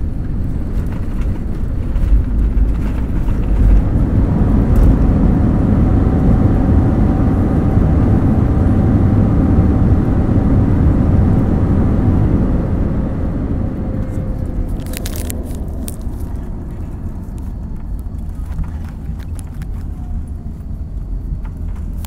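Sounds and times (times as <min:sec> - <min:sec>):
jet engines and wheels rumbling: 0:00.0 - 0:22.0
light clicks and rattles: 0:14.1 - 0:22.0.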